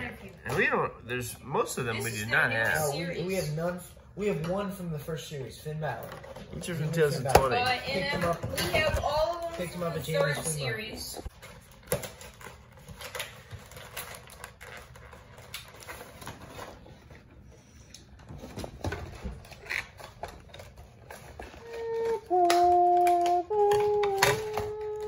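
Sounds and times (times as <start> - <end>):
plastic packaging crinkling: 11.3 - 17.2.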